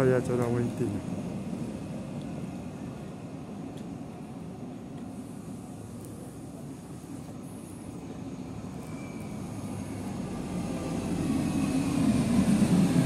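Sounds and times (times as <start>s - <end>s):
metro train rumble: 0.0s - 13.0s.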